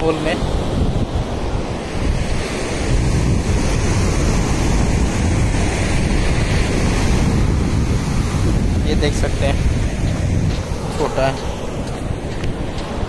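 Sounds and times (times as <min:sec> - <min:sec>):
sea surf: 0:00.0 - 0:13.0
wind buffeting microphone: 0:00.0 - 0:13.0.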